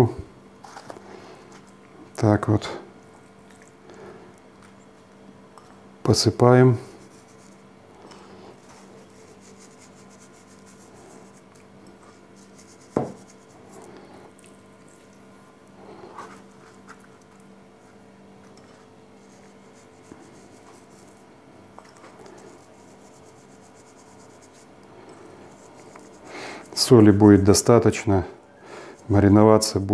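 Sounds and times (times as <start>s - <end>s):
steady low hum: 0.0s - 29.9s
hands rubbing fish and salt: 6.9s - 15.3s, 16.1s - 27.7s.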